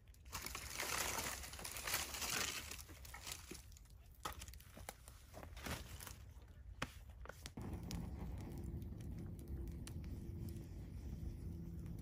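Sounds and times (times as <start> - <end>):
wood rustling on campfire: 0.0 - 12.0
fire snapping: 7.4 - 12.0.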